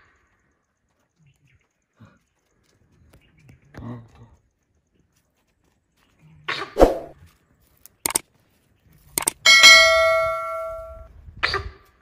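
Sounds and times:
quick double clicks: 0:09.2 - 0:09.4
bell ding: 0:09.5 - 0:11.1.

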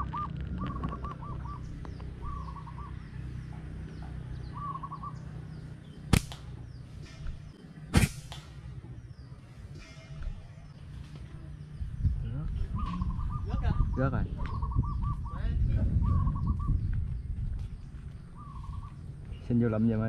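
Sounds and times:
dove cooing: 0:00.0 - 0:03.2, 0:04.4 - 0:05.3, 0:12.6 - 0:15.4, 0:16.0 - 0:16.7
slingshot cracks: 0:06.1 - 0:06.6, 0:07.9 - 0:08.6
small birds chirping faintly: 0:16.1 - 0:20.0.

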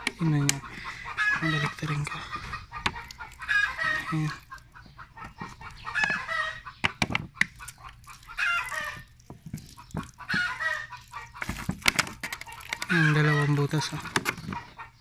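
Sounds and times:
chickens clucking: 0:00.0 - 0:15.0
plastic bottle crinkling: 0:05.2 - 0:14.7.

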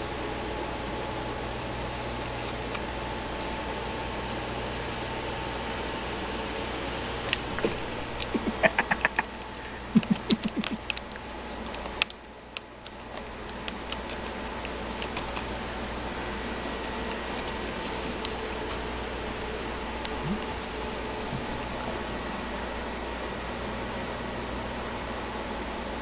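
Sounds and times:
cat claws scratching rope post: 0:12.9 - 0:15.6, 0:16.5 - 0:18.4
low hum: 0:19.7 - 0:22.0.

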